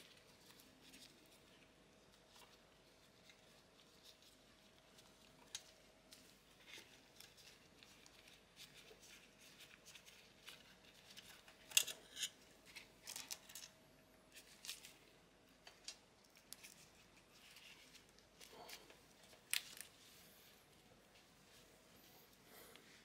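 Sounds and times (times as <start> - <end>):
clicks and rustles of handling wires: 0.0 - 22.0.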